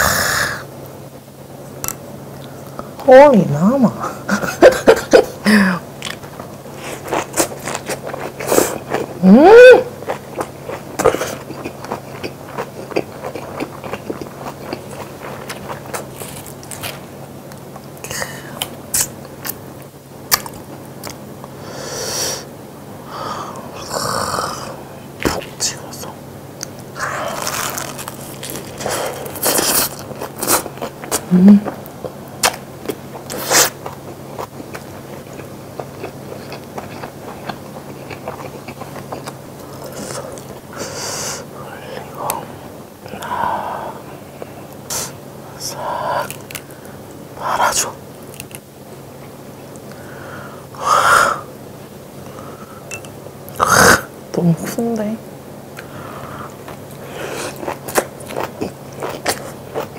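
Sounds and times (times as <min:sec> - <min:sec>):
faint low hum: 0:00.0 - 0:59.9
wet chewing with lips closed: 0:10.0 - 0:16.9, 0:32.4 - 0:40.6, 0:56.6 - 0:59.9.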